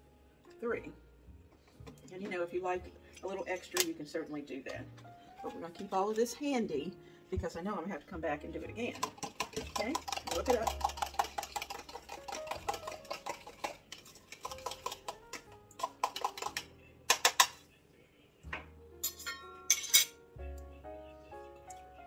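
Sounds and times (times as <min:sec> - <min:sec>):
background music: 0:00.0 - 0:22.0
utensil clinking against glass bowl: 0:08.9 - 0:17.6, 0:19.0 - 0:20.1.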